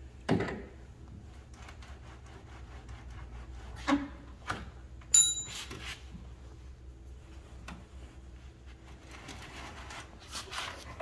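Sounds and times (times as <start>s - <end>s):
short metallic ring: 5.1s - 5.7s.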